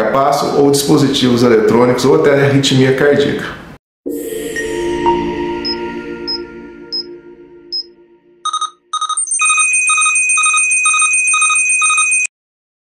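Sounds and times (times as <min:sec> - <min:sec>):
music sting: 0:04.1 - 0:08.5
electronic ringing tone: 0:04.1 - 0:12.3.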